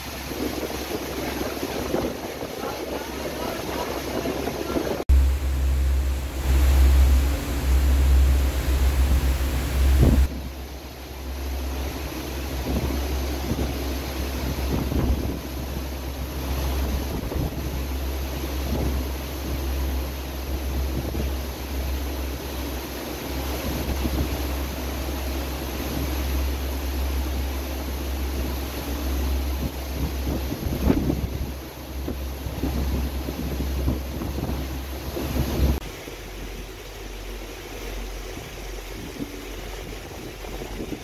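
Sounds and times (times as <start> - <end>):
wind buffeting microphone: 0.0 - 21.5, 28.3 - 35.8, 38.3 - 41.0
choppy water around boat: 0.0 - 41.0
rushing wind: 0.0 - 41.0.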